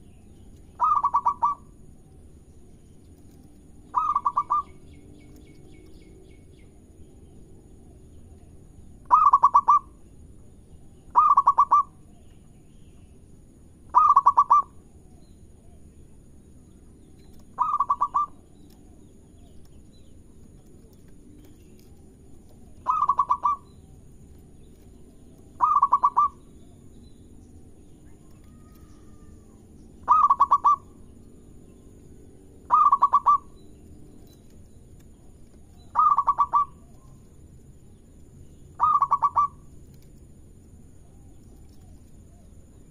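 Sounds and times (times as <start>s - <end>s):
dove cooing: 0.7s - 1.8s, 3.3s - 5.9s, 9.0s - 10.0s, 11.1s - 12.0s, 13.9s - 14.8s, 17.3s - 19.6s, 20.7s - 23.9s, 24.7s - 26.8s, 28.2s - 31.0s, 32.6s - 33.6s, 35.6s - 37.1s, 38.8s - 39.7s.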